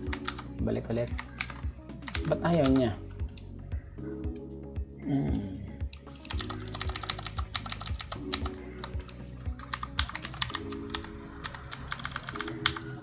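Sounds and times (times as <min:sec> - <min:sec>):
rapid typing on keyboard: 0:00.0 - 0:03.4, 0:06.1 - 0:13.0.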